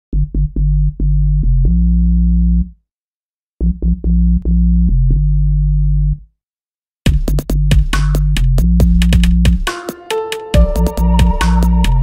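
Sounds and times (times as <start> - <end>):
synthesizer keyboard music: 9.7 - 12.0.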